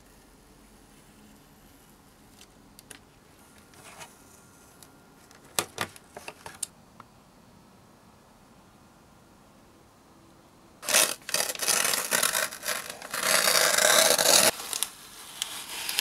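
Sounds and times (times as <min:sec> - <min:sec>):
plastic film rustle: 0:10.8 - 0:16.0.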